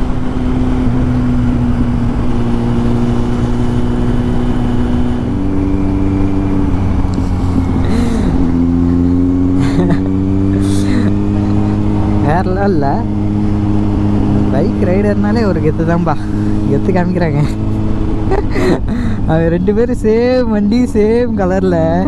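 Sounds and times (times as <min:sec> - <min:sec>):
wind noise: 0:00.0 - 0:12.2
motorcycle engine cruising: 0:00.0 - 0:22.0.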